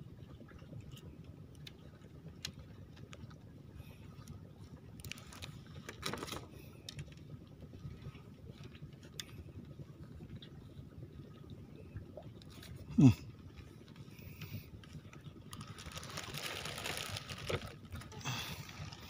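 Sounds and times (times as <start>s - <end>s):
low background rumble: 0.0s - 19.0s.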